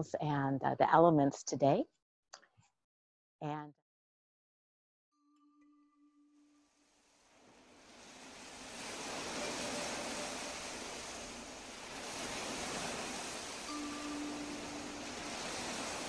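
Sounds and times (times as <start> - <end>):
ocean waves washing: 6.8 - 16.0
soft steady ringing tone: 8.6 - 16.0.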